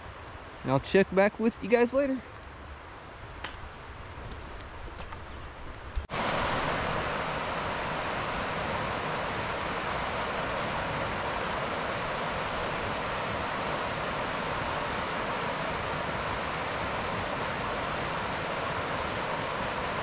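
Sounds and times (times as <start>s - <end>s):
stream water rushing: 6.1s - 20.0s.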